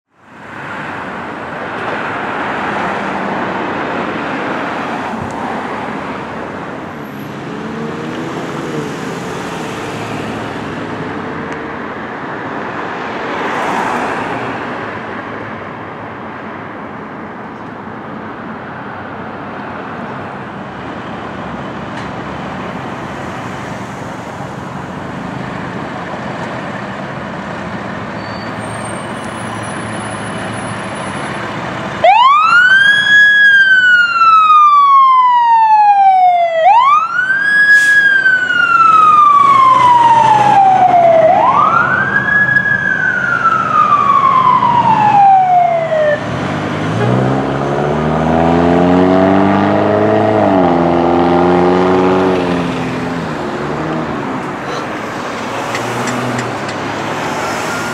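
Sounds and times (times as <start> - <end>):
fire engine siren wailing: 31.8 - 46.3, 54.6 - 57.9.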